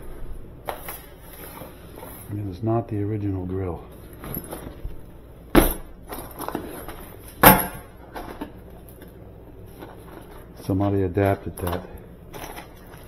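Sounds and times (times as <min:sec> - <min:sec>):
steady low hum: 0:00.0 - 0:13.0
sharp metallic clanks: 0:07.4 - 0:08.0.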